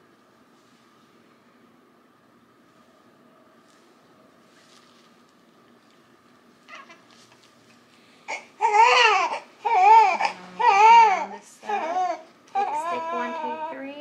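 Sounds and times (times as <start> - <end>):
baby crying: 8.3 - 13.9.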